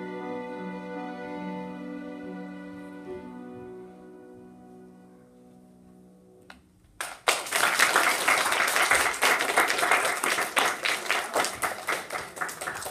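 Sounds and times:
violin ensemble with piano chord: 0:00.0 - 0:06.3
audience applauding: 0:07.0 - 0:12.9.

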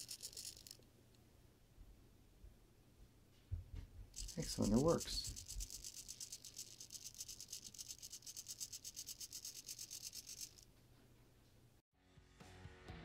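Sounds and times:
servo motor ticking buzz: 0:00.0 - 0:00.8, 0:04.2 - 0:10.6.

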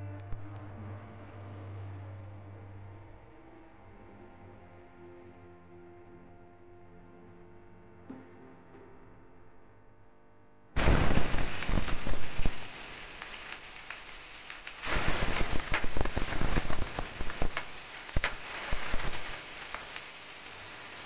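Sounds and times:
pork sizzling in hot oil: 0:10.8 - 0:21.0.

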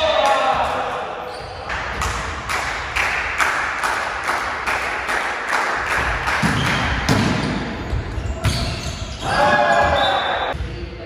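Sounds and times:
rhythmic clapping: 0:02.0 - 0:07.0.

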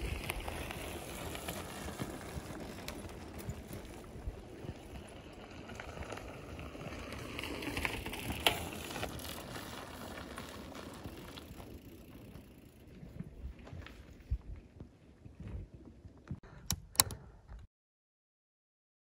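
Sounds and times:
bike tyres crunching on gravel: 0:00.0 - 0:15.0
sharp click: 0:16.6 - 0:17.2.

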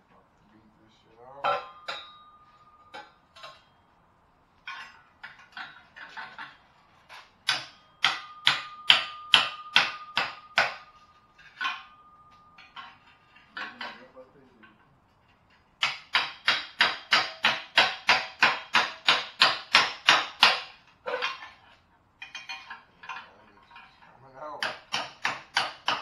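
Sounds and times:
steel bar striking metal pipe: 0:01.4 - 0:03.8, 0:04.7 - 0:14.0, 0:15.8 - 0:21.6
pipe ringing: 0:01.4 - 0:04.0, 0:07.5 - 0:14.9.

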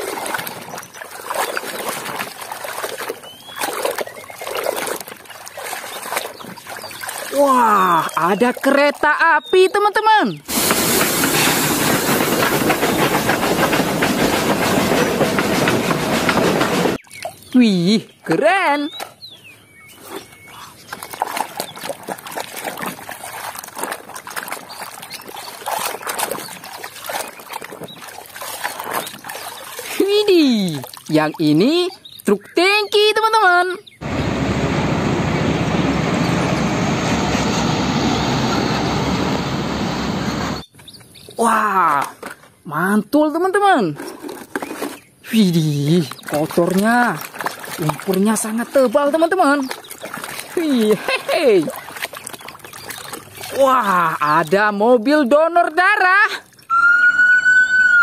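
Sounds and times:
hand sloshing in muddy water: 0:00.0 - 0:09.2, 0:19.9 - 0:31.8, 0:45.4 - 0:55.3
water splashing and dripping: 0:00.0 - 0:16.4, 0:17.0 - 0:17.7, 0:19.9 - 0:32.5, 0:45.4 - 0:56.8.

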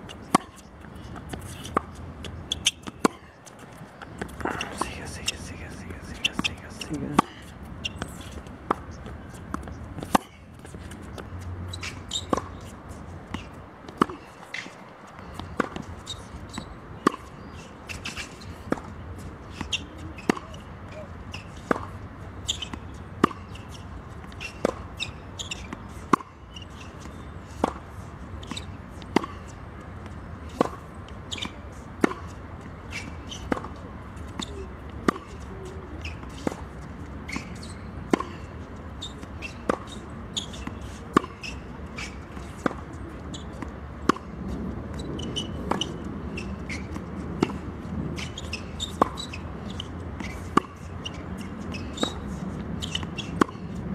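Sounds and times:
tennis balls bouncing on hard court: 0:18.0 - 0:36.7, 0:39.0 - 0:53.9.

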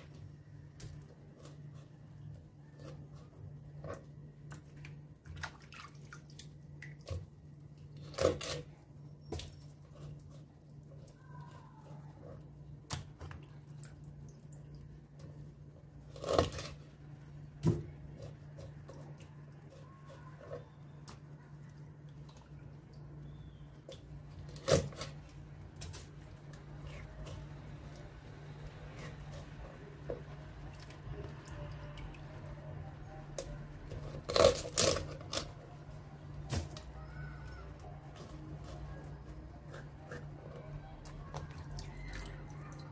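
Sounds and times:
low steady hum: 0:00.0 - 0:42.9
knife slicing and scraping fish: 0:00.8 - 0:04.7, 0:07.0 - 0:13.3, 0:16.0 - 0:21.3, 0:24.3 - 0:32.4, 0:33.3 - 0:42.5
crunch of knife through fish: 0:07.0 - 0:13.3, 0:16.0 - 0:21.3, 0:24.3 - 0:31.4, 0:33.4 - 0:42.5.

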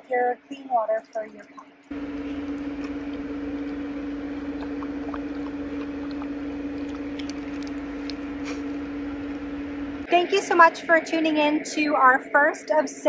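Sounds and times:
dog lapping water: 0:00.8 - 0:09.5
steady motor hum: 0:01.8 - 0:12.9.

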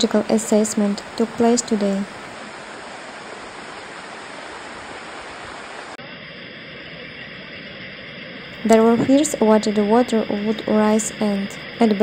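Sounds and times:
floodwater rushing: 0:00.0 - 0:06.0.

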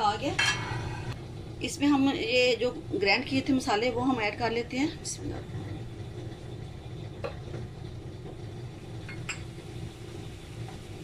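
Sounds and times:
gas stove burner rumble: 0:00.0 - 0:11.0.

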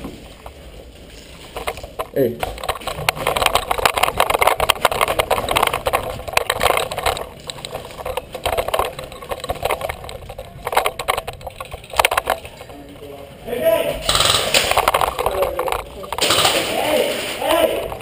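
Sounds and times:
airsoft guns firing bursts: 0:14.0 - 0:15.2, 0:16.2 - 0:17.2.

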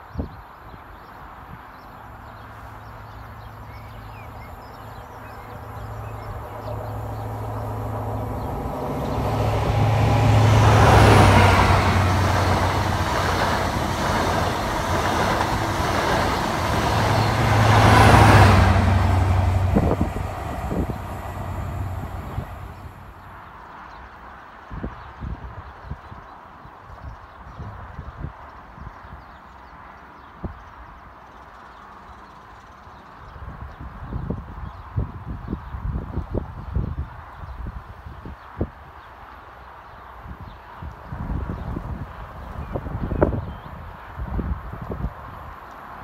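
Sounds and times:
train coaches rumbling on rails: 0:02.0 - 0:23.4
diesel engine hum: 0:02.5 - 0:23.2.

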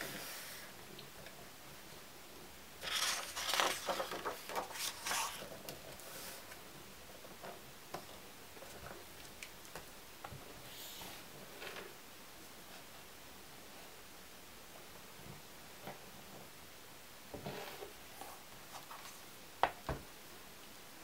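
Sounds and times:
album pages rustling and sliding: 0:02.8 - 0:06.6, 0:17.5 - 0:19.3.

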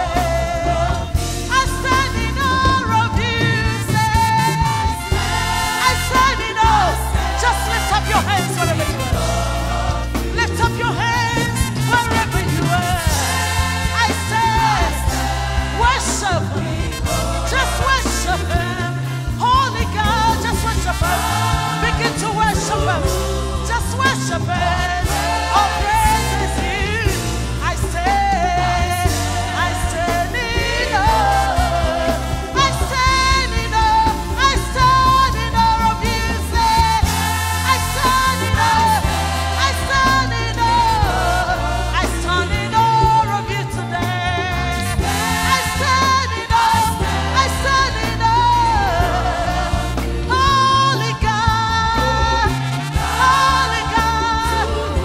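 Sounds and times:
choir singing: 0:00.0 - 0:55.0
drums: 0:00.0 - 0:55.0
keyboard: 0:00.0 - 0:55.0
woman singing lead: 0:00.0 - 0:55.0.

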